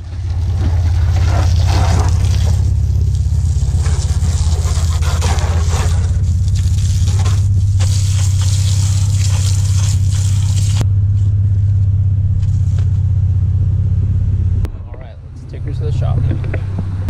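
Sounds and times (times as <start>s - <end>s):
garden hose spraying: 0.0s - 10.8s
loud low hum: 0.0s - 17.0s.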